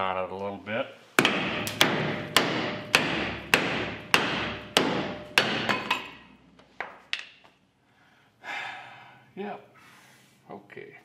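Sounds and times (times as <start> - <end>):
hammer pounding on steel: 1.2 - 6.3.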